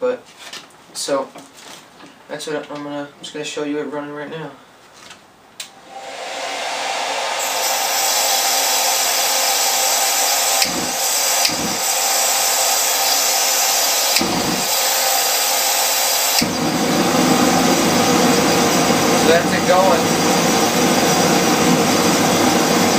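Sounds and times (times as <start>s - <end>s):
hair dryer blowing: 5.8s - 22.9s
propane flame rumble: 10.5s - 11.8s, 14.1s - 14.7s, 16.4s - 22.9s.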